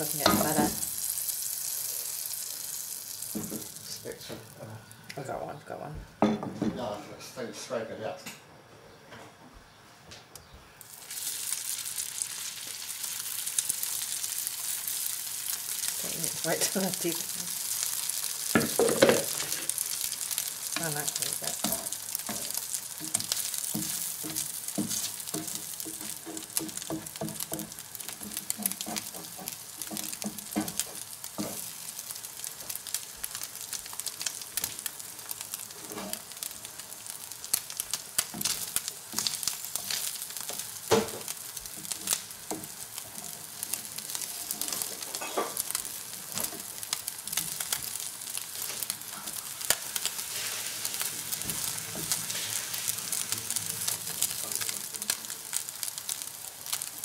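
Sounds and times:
fritter sizzling in butter: 0.0s - 7.0s, 10.8s - 57.0s
spatula scraping and tapping pan: 21.5s - 31.6s.

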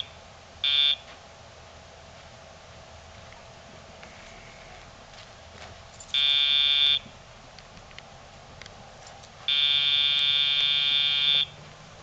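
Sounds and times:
transmitter buzzing: 9.5s - 11.7s.

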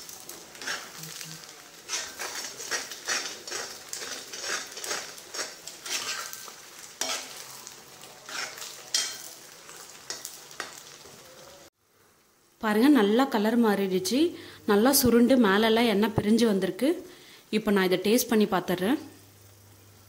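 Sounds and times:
paste sizzling in oil: 0.0s - 12.5s
spoon scraping a pan: 0.5s - 11.0s.

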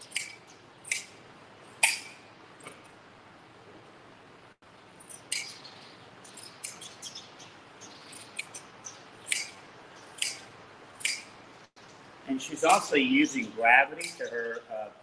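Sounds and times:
hand shears snipping fleece: 12.6s - 12.8s.

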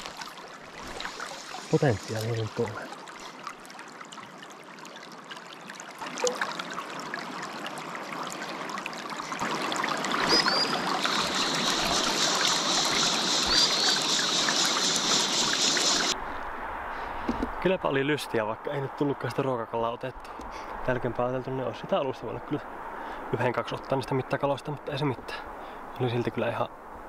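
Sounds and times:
river water rushing: 0.0s - 5.4s, 6.0s - 16.2s
brief high chirps: 10.3s - 15.6s.

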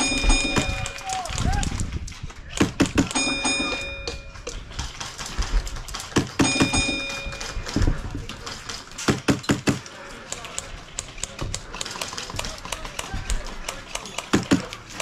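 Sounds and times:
ringing tone: 0.0s - 1.1s, 3.2s - 4.5s, 6.4s - 7.7s
airsoft gunshots: 2.5s - 3.8s, 4.8s - 10.6s, 11.2s - 15.0s.

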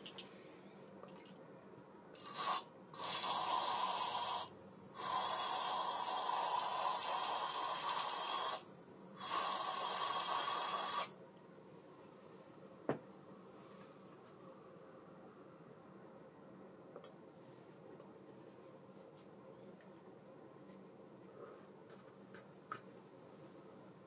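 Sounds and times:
light clink: 17.0s - 17.2s.

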